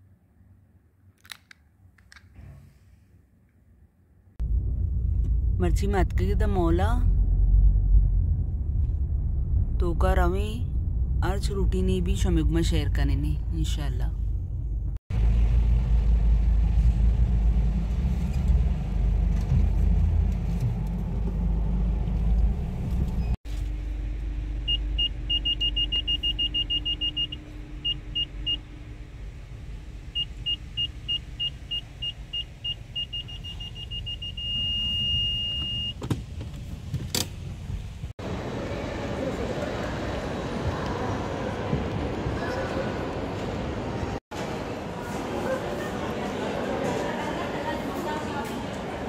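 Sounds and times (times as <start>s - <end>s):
car engine and tyres rumbling: 4.4s - 44.9s
parking sensor beeping: 24.6s - 28.7s, 30.1s - 36.0s.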